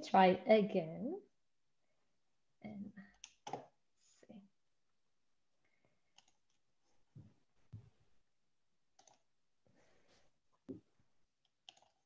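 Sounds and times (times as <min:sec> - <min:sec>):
mouse and keyboard clicks: 0:11.5 - 0:12.0.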